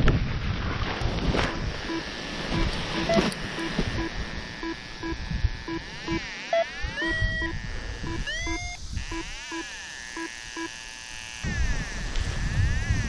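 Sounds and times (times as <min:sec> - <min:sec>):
wind rumble on microphone: 0:00.0 - 0:06.2, 0:06.8 - 0:09.3, 0:11.4 - 0:13.0
rising electronic chirps: 0:02.6 - 0:09.6
short electronic beeps: 0:02.6 - 0:09.6.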